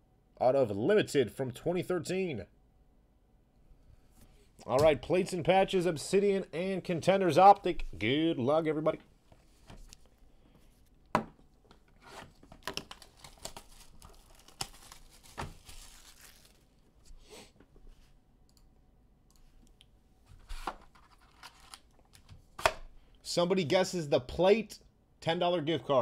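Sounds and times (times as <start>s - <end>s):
plastic wrap crinkling: 12.1s - 17.0s
plastic shrink wrap tearing: 12.6s - 16.8s.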